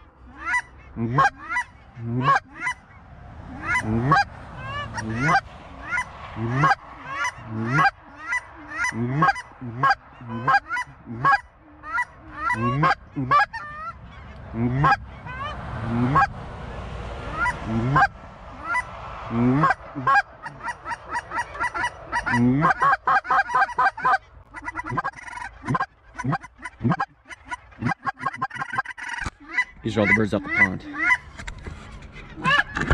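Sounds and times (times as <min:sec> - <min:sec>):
geese honking: 0:00.0 - 0:32.9.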